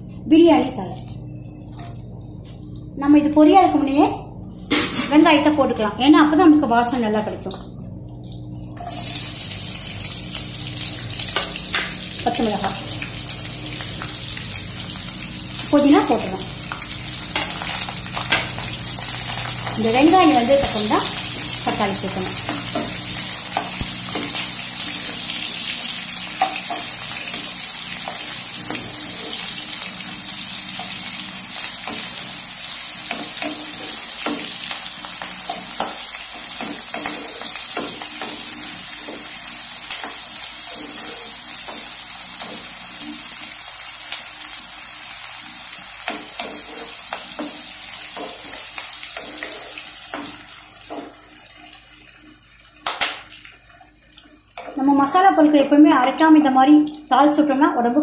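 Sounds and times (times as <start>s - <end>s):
vegetables sizzling in hot oil: 8.4s - 57.6s.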